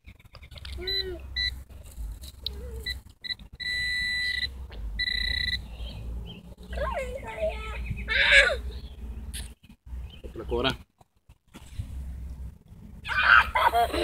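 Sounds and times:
metal detector pinpointer beeping: 0.8 - 1.6, 2.8 - 5.7.

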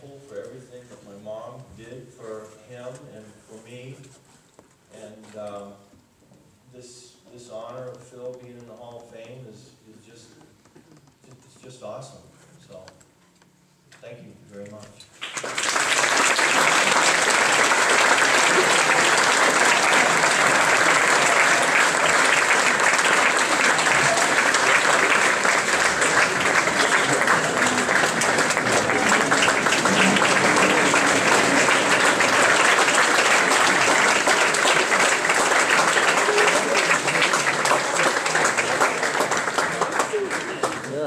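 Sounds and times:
crowd applauding: 15.2 - 41.0.

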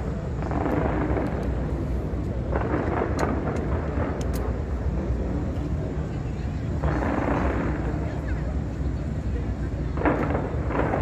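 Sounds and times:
sharp high crackles: 0.0 - 5.4, 6.6 - 11.0
fireworks explosions: 0.0 - 11.0.

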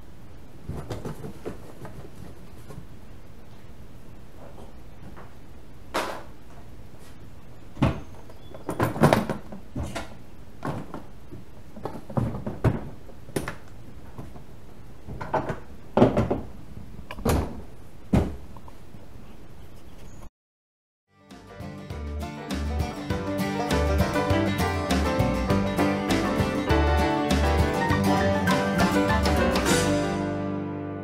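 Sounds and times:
plastic toolbox knocks and clunks: 15.1 - 16.5.

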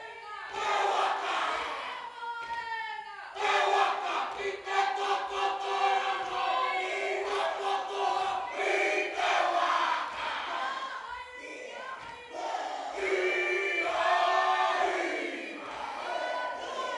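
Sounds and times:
group chanting and singing: 0.0 - 16.9.

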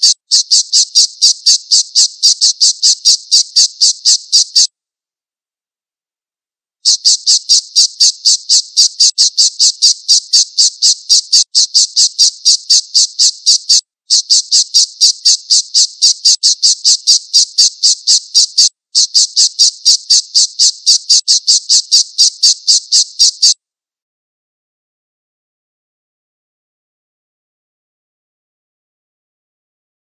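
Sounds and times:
falcon calling sharp kee notes: 0.0 - 4.7, 6.9 - 23.6.

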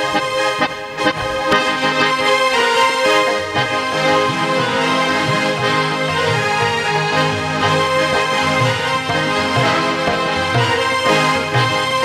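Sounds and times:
harmonium chords: 0.0 - 12.0
keyboard: 0.0 - 12.0
tabla drum beat: 4.6 - 12.0.

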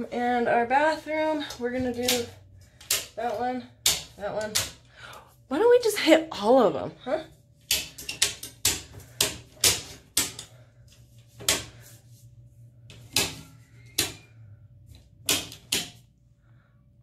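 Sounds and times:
circuit breaker switches clicking: 2.0 - 3.2.

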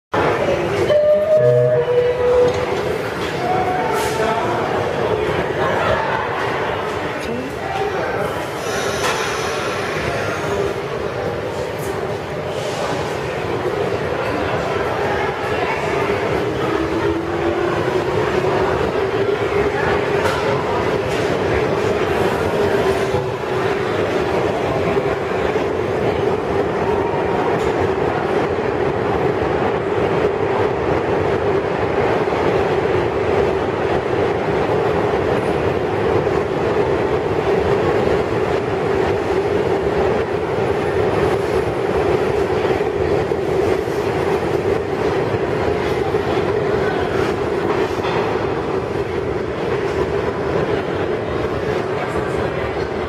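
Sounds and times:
subway train rumbling: 0.1 - 53.0.

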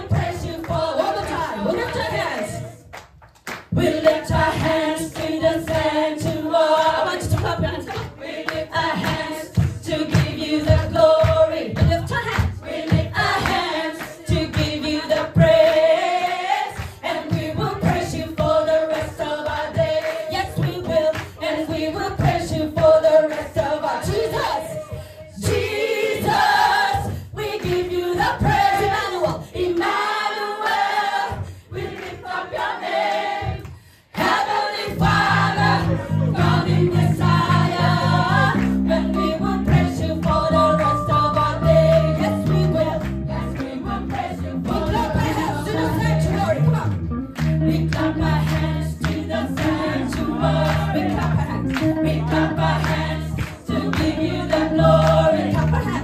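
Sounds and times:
gospel choir singing: 0.0 - 2.8, 3.7 - 56.0
band playing steady beat: 35.0 - 56.0.

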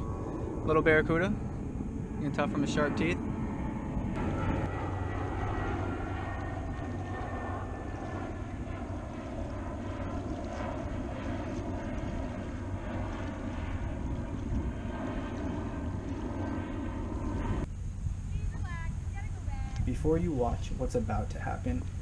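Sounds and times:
propeller airplane droning: 0.0 - 22.0.

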